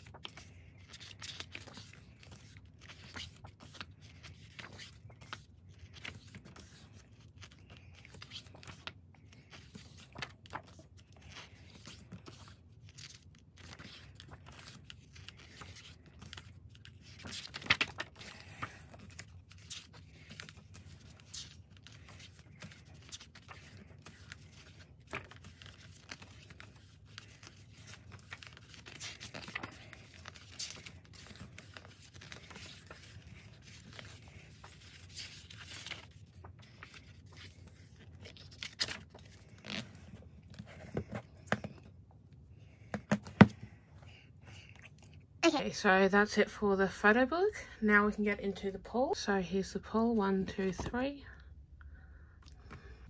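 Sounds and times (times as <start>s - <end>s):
book pages turning: 0.0s - 43.8s.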